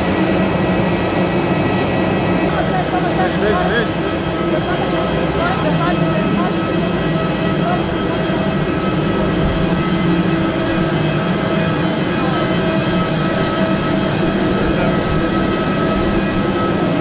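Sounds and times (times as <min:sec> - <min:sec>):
machinery drone with whining tones: 0:00.0 - 0:17.0.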